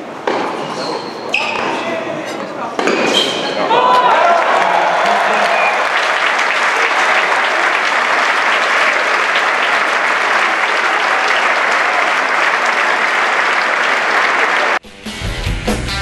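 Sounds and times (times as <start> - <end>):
crowd clapping: 3.8 - 14.8.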